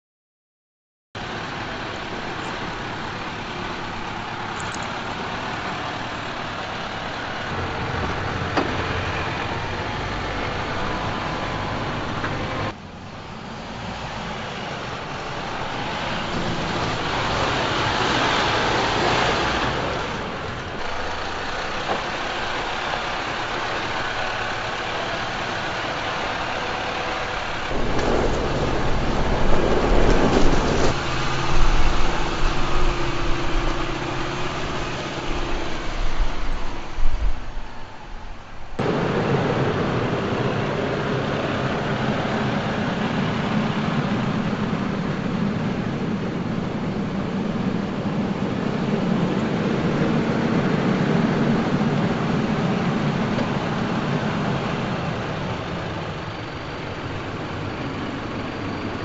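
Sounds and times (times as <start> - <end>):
diesel truck engine running: 1.2 - 59.0
tyres rolling over gravel: 14.0 - 36.1.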